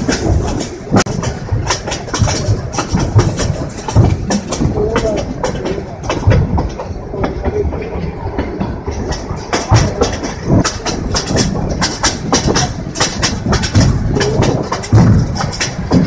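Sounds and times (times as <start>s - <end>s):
carriage knocking and clattering: 0.0s - 7.5s, 8.4s - 16.0s
train wheels rumbling on rail: 0.0s - 16.0s.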